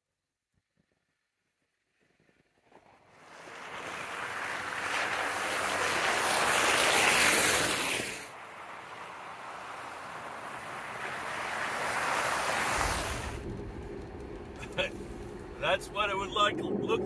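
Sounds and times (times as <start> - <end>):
tyres splashing through slush: 2.6 - 17.0
pickup truck driving past: 3.2 - 16.0.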